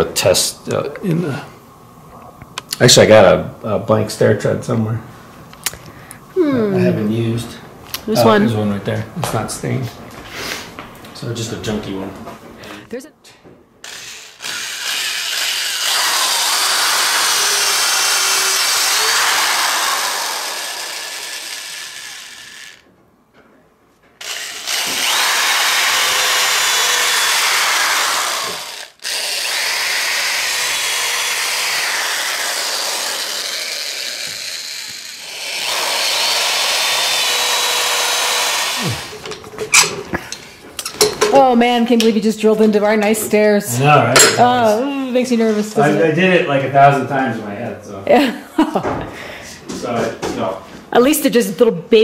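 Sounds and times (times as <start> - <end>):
electric drill boring into wood: 13.8 - 22.9, 24.2 - 39.3.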